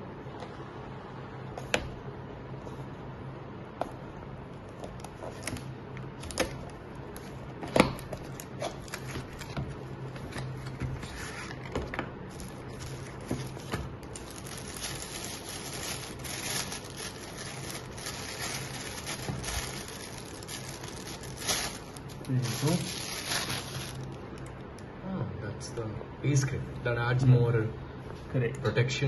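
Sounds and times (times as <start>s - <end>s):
plastic bag crinkling: 12.3s - 24.4s.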